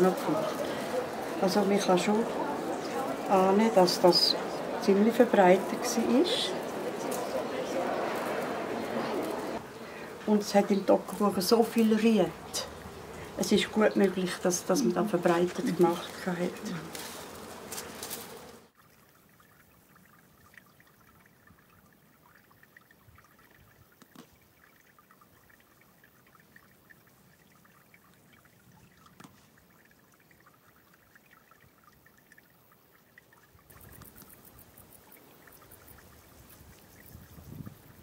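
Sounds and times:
water trickling: 0.0s - 38.0s
grass stalks rustling: 14.9s - 18.7s.

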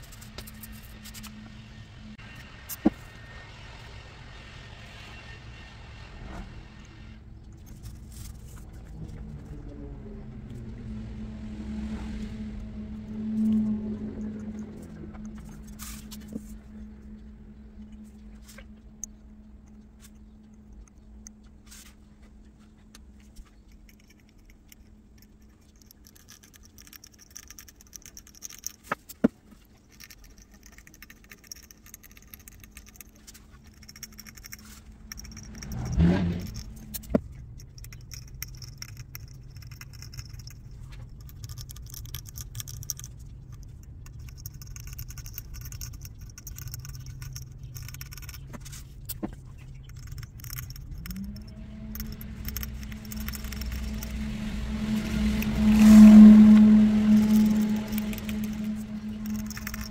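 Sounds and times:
mechanical hum: 0.0s - 59.9s
metallic clinks and scraping: 25.3s - 59.9s
loud rush: 51.6s - 59.9s.

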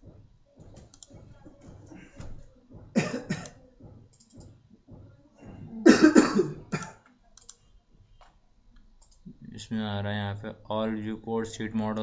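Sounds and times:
person coughing: 3.0s - 3.6s, 5.7s - 7.0s.

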